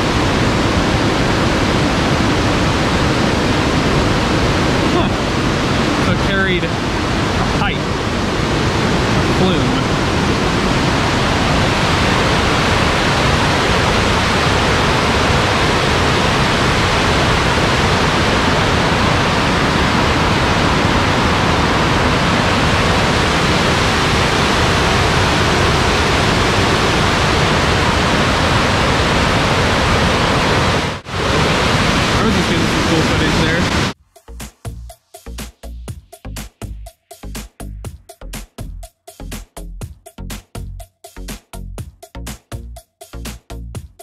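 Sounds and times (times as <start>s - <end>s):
waterfall rushing: 0.0s - 34.0s.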